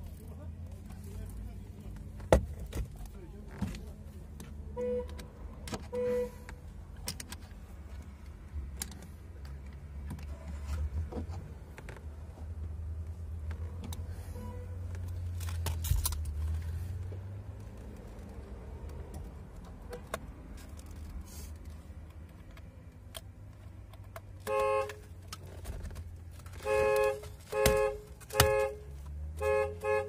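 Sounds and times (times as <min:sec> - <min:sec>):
car horn toots: 0:04.7 - 0:06.5, 0:14.3 - 0:14.8, 0:24.4 - 0:25.0, 0:26.6 - 0:30.0.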